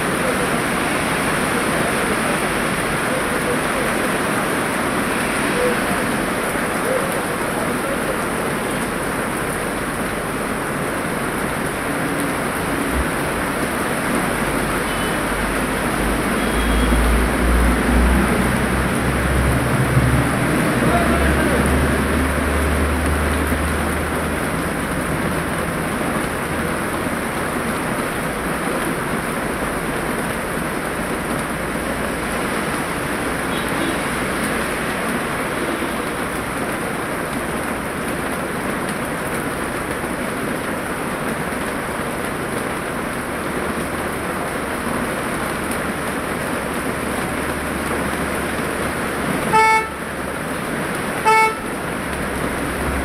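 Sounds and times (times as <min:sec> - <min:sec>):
heavy rain on street: 0:00.0 - 0:53.0
vehicle horn toots: 0:16.4 - 0:17.0, 0:49.5 - 0:50.0, 0:51.2 - 0:51.7.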